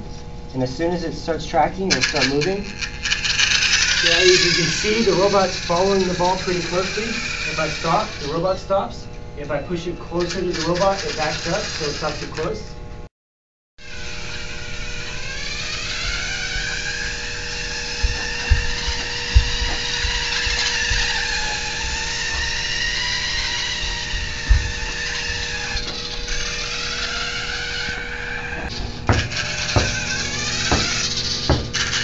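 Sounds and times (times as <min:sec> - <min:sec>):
electric motors and gears whining: 0:00.0 - 0:13.1, 0:13.8 - 0:32.0
dull knocks: 0:17.8 - 0:21.6, 0:24.1 - 0:26.2, 0:28.6 - 0:32.0.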